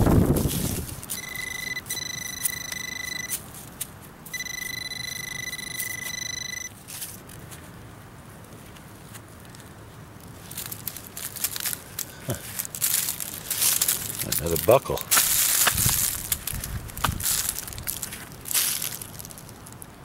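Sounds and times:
metal detector buzzing tone: 1.1 - 3.4, 4.3 - 6.8
hand scraping loose soil: 8.6 - 19.9.

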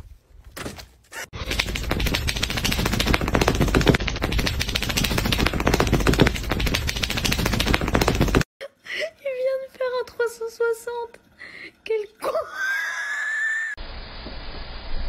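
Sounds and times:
dog ears flapping: 1.4 - 8.5.

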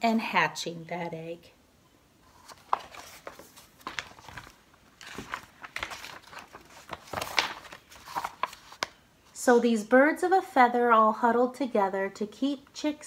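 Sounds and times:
paper pages turning: 2.2 - 9.0.

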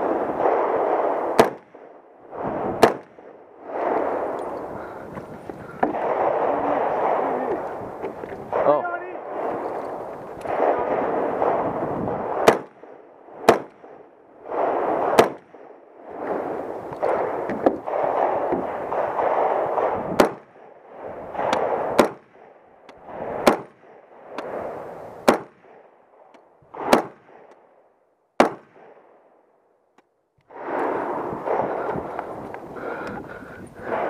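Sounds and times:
rifle shots cracking: 0.0 - 2.0, 2.6 - 4.7, 5.8 - 26.0, 26.8 - 27.7, 28.4 - 29.2.

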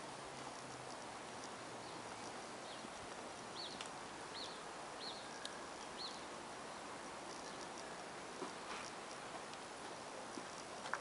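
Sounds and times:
faint outdoor hiss: 0.0 - 11.0
bird chirping: 1.8 - 6.3.

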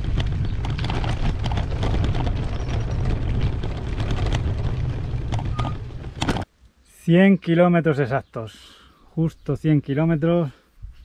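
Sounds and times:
wind buffeting microphone: 0.0 - 6.4
bike clicks and rattles: 0.0 - 6.5.

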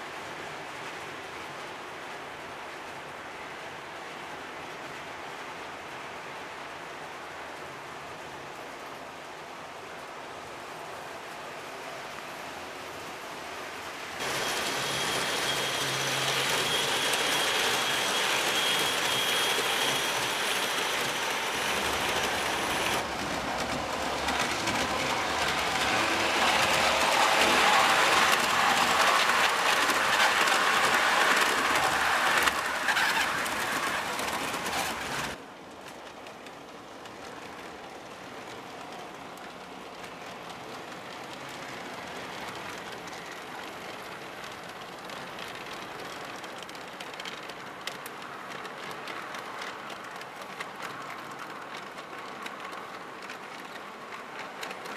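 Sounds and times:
model train wheels rolling on rails: 13.5 - 54.9.

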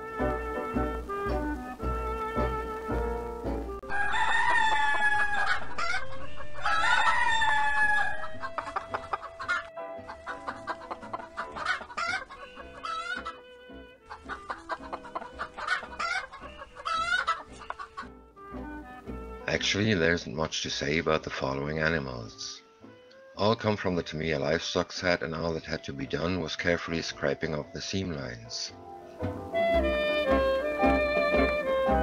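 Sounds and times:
rooster crowing: 3.8 - 13.4
chickens clucking: 3.8 - 19.6.

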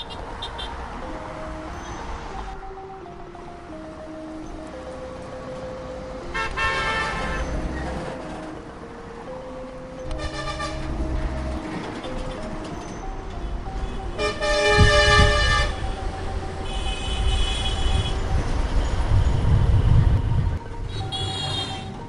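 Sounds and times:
vehicle horns honking: 0.0 - 1.0, 6.2 - 8.1, 10.1 - 22.0
music: 0.0 - 22.0
road traffic rumble: 0.0 - 22.0.

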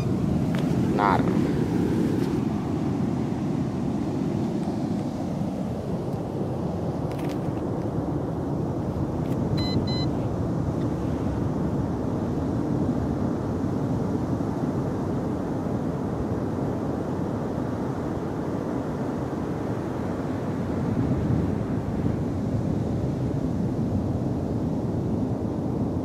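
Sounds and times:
ocean surf breaking: 0.0 - 6.0
high electronic beeps: 9.6 - 10.1.

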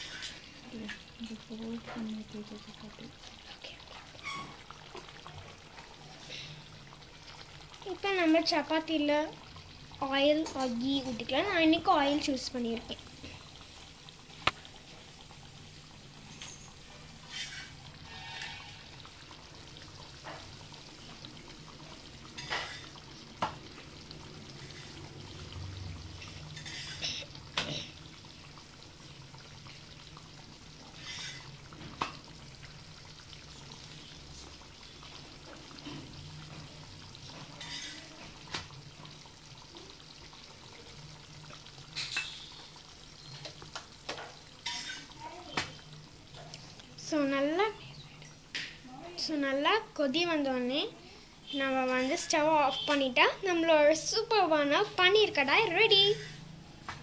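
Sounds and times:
oil sizzling in pan: 0.0 - 57.0
spatula scraping pan: 16.5 - 19.0, 24.6 - 25.0, 26.2 - 27.2, 30.9 - 31.6, 37.3 - 38.1, 44.6 - 45.1, 55.9 - 56.5.

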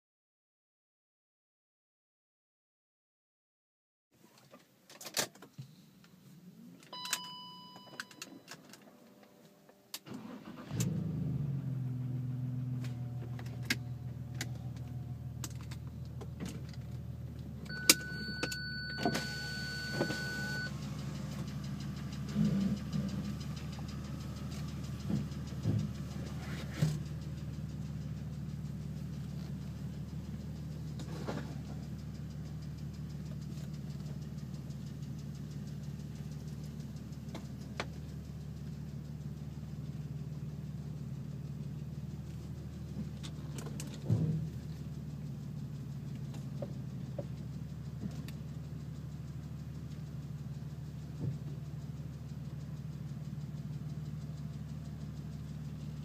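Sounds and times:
car engine cranking and idling: 4.2 - 56.0
steady electronic beep: 17.7 - 20.7.

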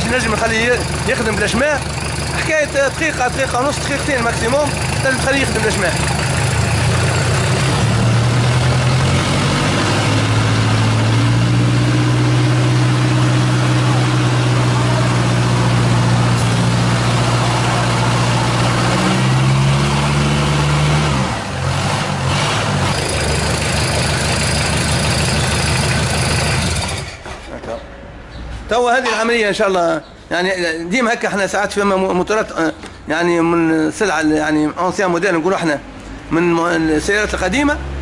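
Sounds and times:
diesel engine running: 0.0 - 27.4.

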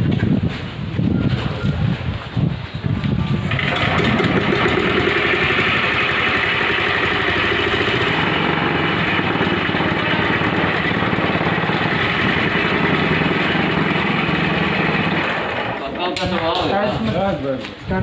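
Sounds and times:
rope pull: 3.3 - 15.8
diesel engine clattering: 3.4 - 16.2.

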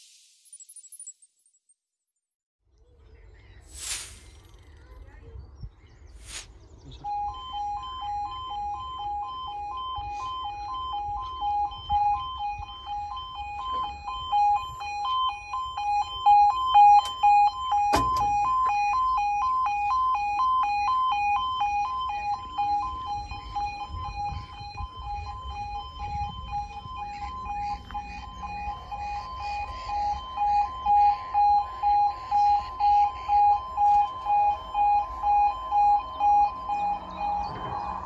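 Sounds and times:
two-tone crossing alarm: 6.9 - 38.0
wind rumbling on microphone: 22.9 - 27.6.

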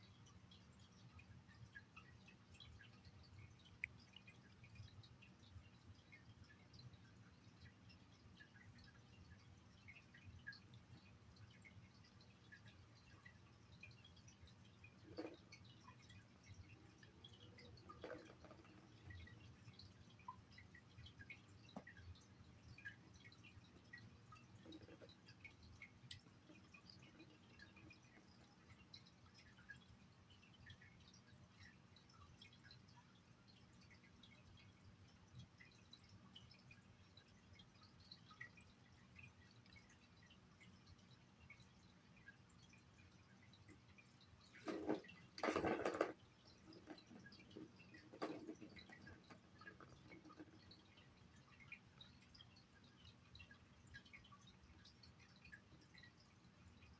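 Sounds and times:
faint tiny ticks: 0.0 - 56.9
plastic ball rolling rattle: 17.8 - 19.0, 44.6 - 50.8.

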